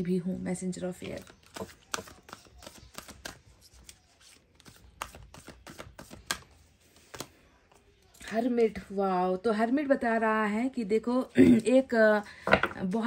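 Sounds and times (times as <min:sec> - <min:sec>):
cards flicked and slid: 0:04.6 - 0:07.3.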